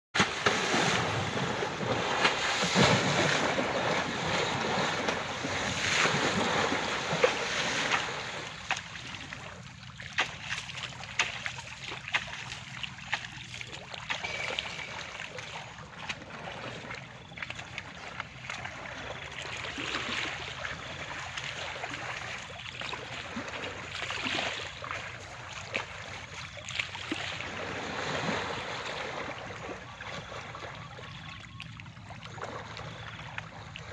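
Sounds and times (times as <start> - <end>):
elephant splashing in water: 0.2 - 33.9.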